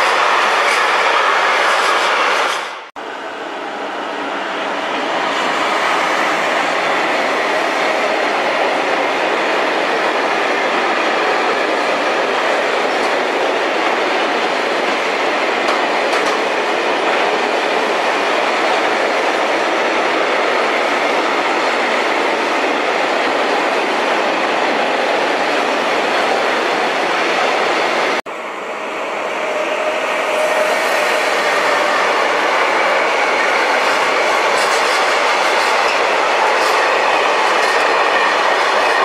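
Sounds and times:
freight train wheels on rails: 0:00.0 - 0:39.0.

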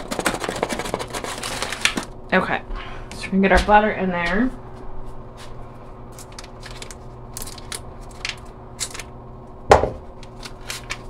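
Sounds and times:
paper wrapper crinkling: 0:00.0 - 0:02.2, 0:06.0 - 0:09.2, 0:10.1 - 0:11.0.

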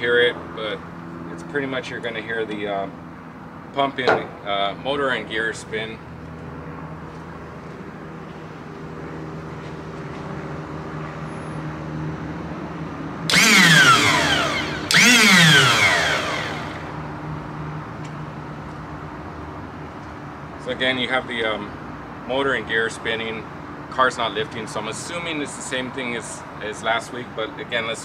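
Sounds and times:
hydraulic pump motor whining: 0:13.3 - 0:17.0.

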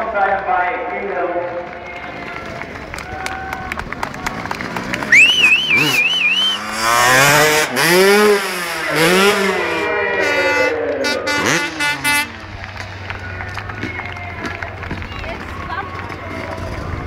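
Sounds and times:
motocross bike engine revving: 0:04.4 - 0:14.1
warbling whistle: 0:05.1 - 0:06.8.

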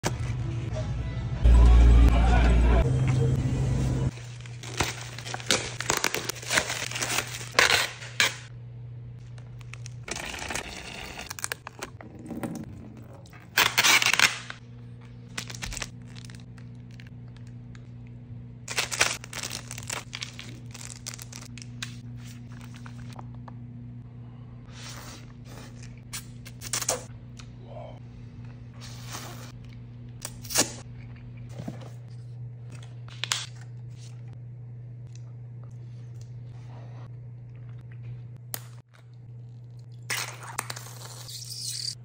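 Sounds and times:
plastic packaging crinkling and tearing: 0:04.1 - 0:08.4, 0:13.5 - 0:14.6, 0:15.3 - 0:17.5, 0:18.7 - 0:23.1.

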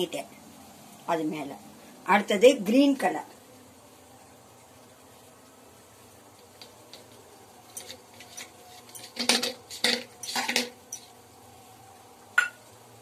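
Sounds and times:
metal spoon scraping steel cup: 0:07.7 - 0:11.1.

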